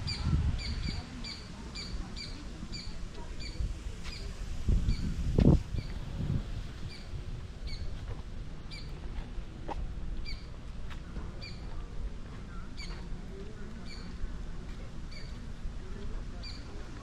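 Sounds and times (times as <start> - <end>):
low outdoor rumble: 0.0 - 17.0
bird chirping: 12.5 - 13.1, 13.8 - 14.2, 15.1 - 15.4.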